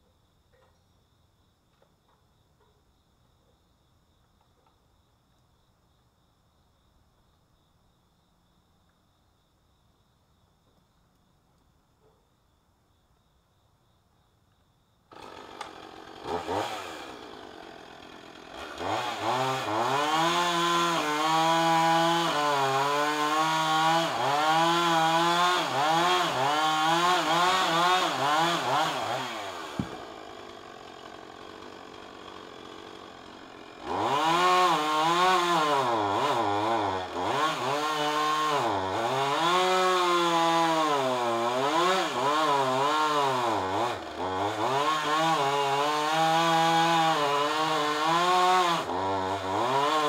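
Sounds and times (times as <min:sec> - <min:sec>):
chainsaw idling and cutting wood: 0:15.1 - 0:50.0.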